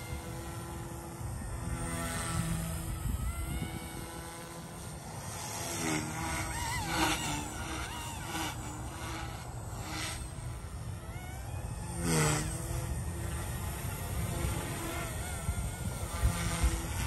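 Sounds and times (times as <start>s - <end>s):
toy helicopter motor whining: 0.0s - 17.0s.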